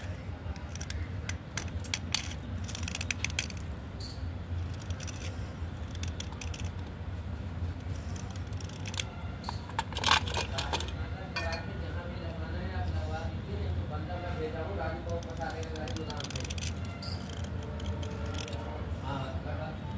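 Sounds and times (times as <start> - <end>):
low steady hum: 0.0 - 19.9
blade scraping slate pencil: 4.6 - 6.9, 7.8 - 10.6, 15.0 - 18.6.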